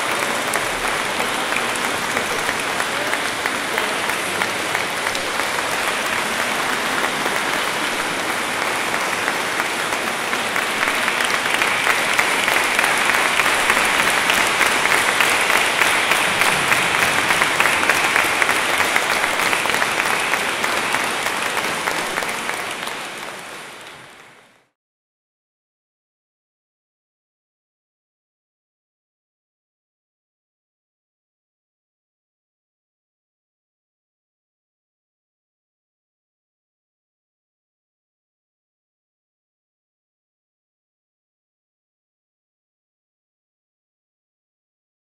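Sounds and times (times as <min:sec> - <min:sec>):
crowd applauding: 0:00.0 - 0:24.8.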